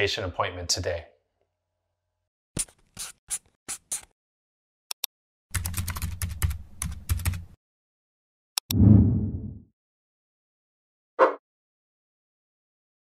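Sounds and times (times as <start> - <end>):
keyboard typing: 4.9 - 7.4.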